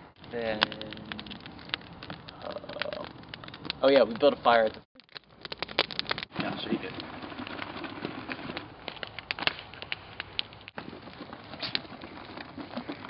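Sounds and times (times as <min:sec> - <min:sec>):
crackling with sharp snaps: 0:00.0 - 0:13.0.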